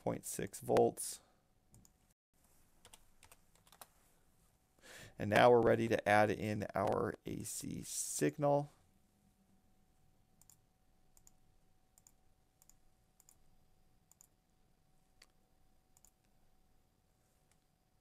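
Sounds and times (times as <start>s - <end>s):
computer mouse clicks: 10.4s - 10.6s, 11.2s - 11.4s, 12.0s - 13.4s, 14.1s - 14.4s, 16.0s - 16.3s.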